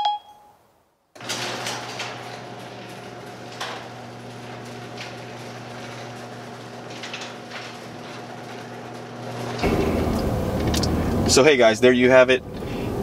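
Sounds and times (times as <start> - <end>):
garage door clicks and knocks: 1.2 - 11.0
garage door opener motor humming: 1.2 - 13.0.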